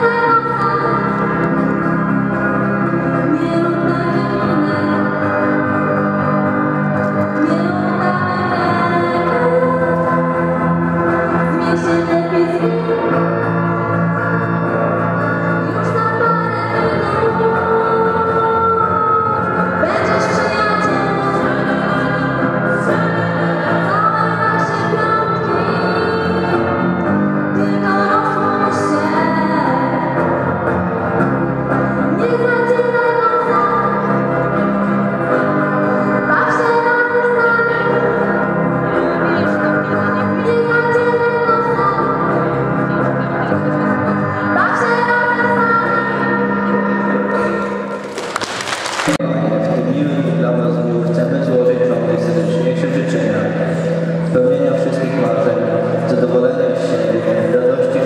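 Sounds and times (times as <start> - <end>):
girl singing into a microphone: 0.0 - 1.0, 3.3 - 5.1, 15.6 - 26.6, 27.6 - 30.0, 32.2 - 34.0, 36.1 - 38.3, 39.0 - 42.4, 44.3 - 47.6.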